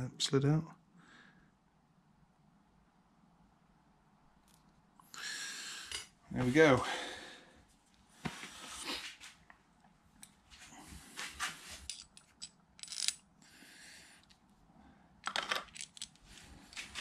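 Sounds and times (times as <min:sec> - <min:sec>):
small metal parts clinking: 0:11.8 - 0:13.2, 0:15.2 - 0:16.4.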